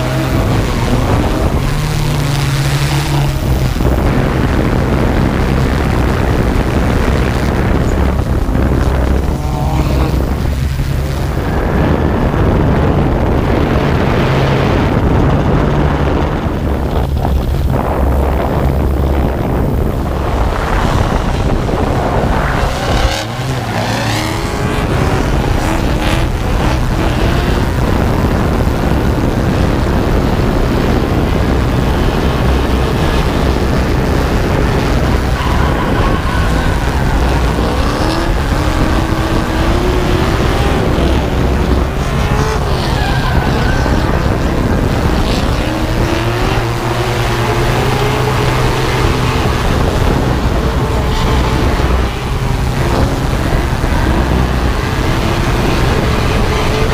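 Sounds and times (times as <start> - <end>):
car engines revving: 0.0 - 56.9
drone humming: 0.0 - 56.9
tire squeal and skidding: 33.0 - 55.2.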